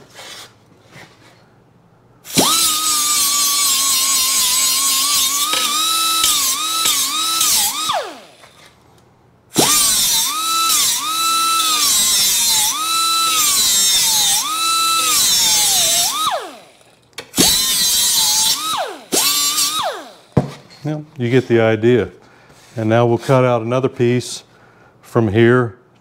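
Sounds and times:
die grinder grinding steel: 2.3 - 8.8, 9.6 - 20.4.

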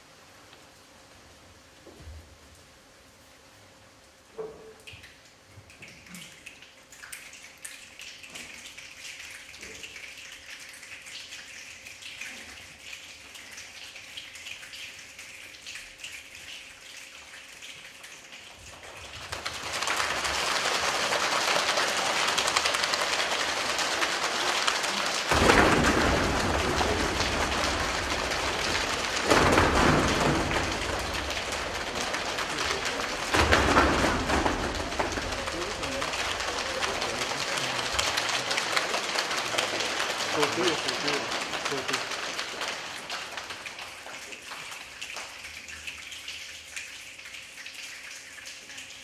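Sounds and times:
heavy rain: 19.3 - 44.2
thunder: 24.9 - 37.0.

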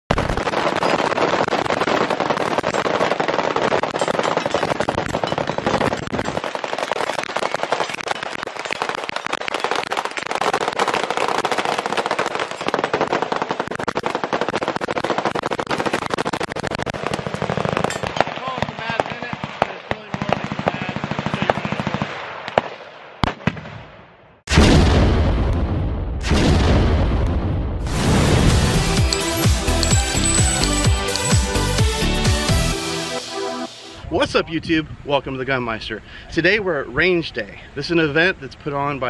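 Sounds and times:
automatic gunfire crackle: 0.1 - 23.9, 27.9 - 32.0.

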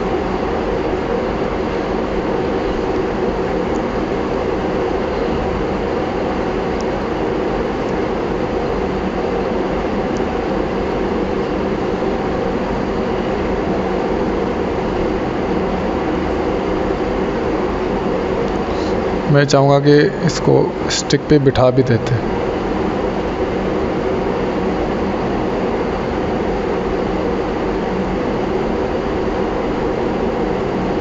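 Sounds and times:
person speaking: 19.3 - 22.5.

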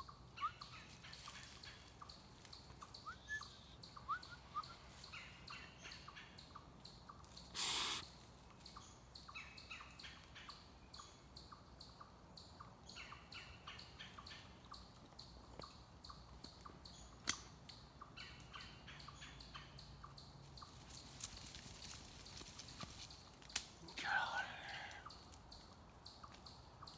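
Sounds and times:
small birds chirping: 0.0 - 26.9.

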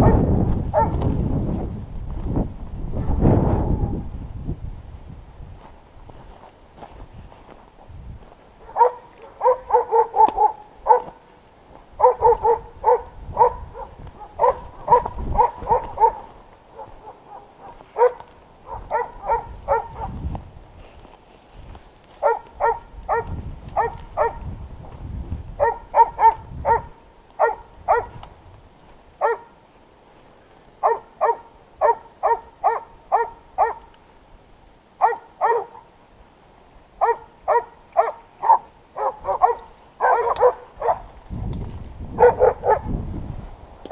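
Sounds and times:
dogs barking: 0.0 - 1.0, 8.6 - 11.2, 12.0 - 20.2, 22.2 - 24.4, 25.6 - 28.2, 29.2 - 29.6, 30.8 - 33.9, 35.0 - 35.9, 37.0 - 41.1, 42.2 - 42.9.

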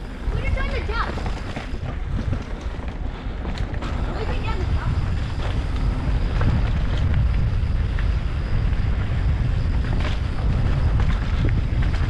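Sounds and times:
bike clicks and rattles: 0.0 - 12.0
wind rushing over microphone: 0.0 - 12.0.

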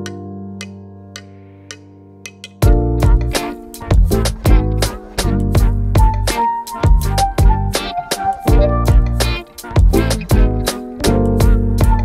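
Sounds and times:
heavy bass and drums: 2.6 - 7.8, 8.5 - 12.0
held tones with ticking beat: 2.6 - 12.0.

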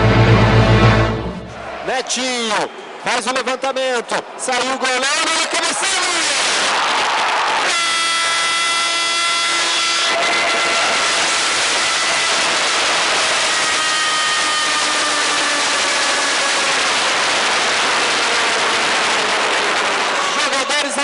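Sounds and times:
stadium crowd roaring: 0.0 - 21.0.

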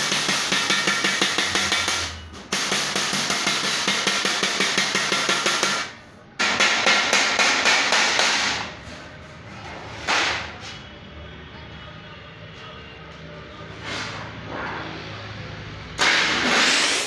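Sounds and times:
wooden mallet striking metal sheet: 0.0 - 8.7, 16.0 - 17.0.

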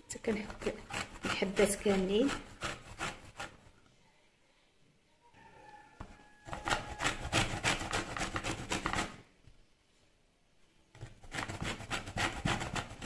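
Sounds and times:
lemon scraping on grater: 0.2 - 3.6, 6.5 - 9.2, 11.2 - 13.0.

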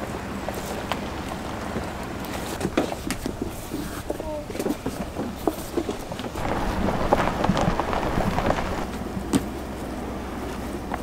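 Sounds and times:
hose dragged across dry ground: 6.4 - 8.9.

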